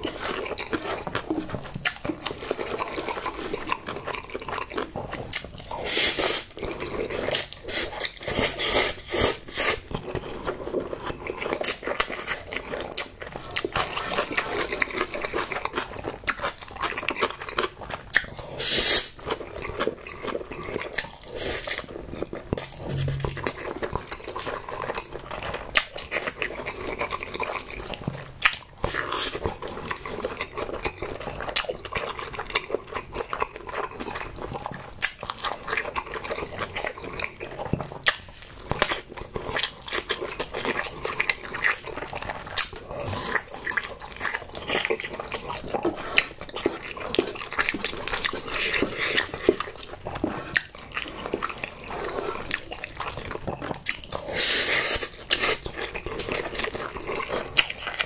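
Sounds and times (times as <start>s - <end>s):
wet chewing and lip smacking: 0.0s - 58.0s
noodle slurp: 5.8s - 6.5s, 54.2s - 55.6s.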